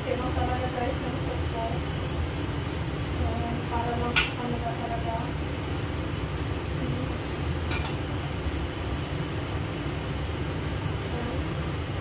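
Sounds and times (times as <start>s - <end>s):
range hood fan humming: 0.0s - 12.0s.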